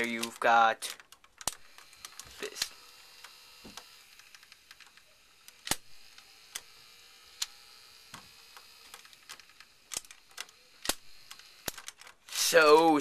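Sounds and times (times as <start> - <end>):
faint steady hum: 0.0 - 13.0
plastic toy parts clicking: 0.0 - 13.0.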